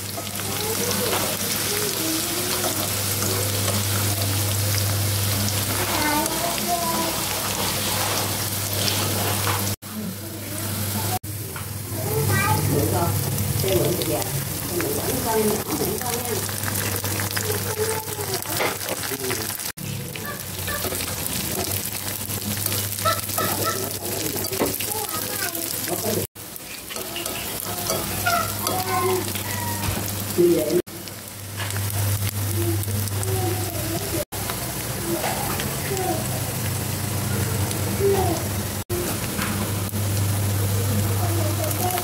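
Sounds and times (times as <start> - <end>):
garlic sizzling in hot oil: 0.0 - 42.0.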